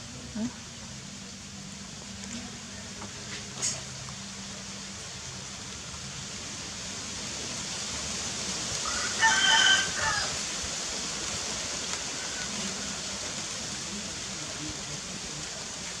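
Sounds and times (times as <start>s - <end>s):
steady hiss: 0.0s - 16.0s
rooster crowing: 8.8s - 10.6s.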